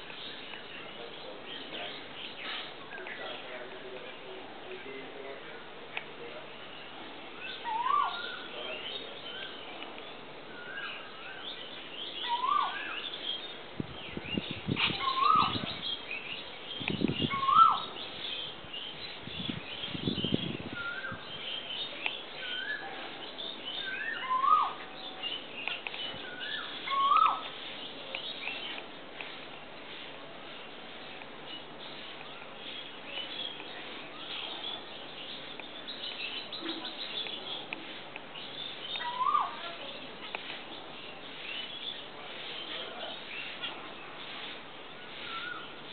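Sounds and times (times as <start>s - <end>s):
high twittering bird chirps: 6.6s - 9.8s, 10.5s - 28.8s, 31.0s - 45.9s.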